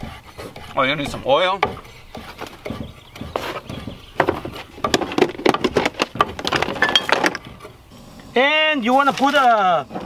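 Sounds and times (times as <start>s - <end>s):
knife chopping on wooden board: 0.0s - 6.4s.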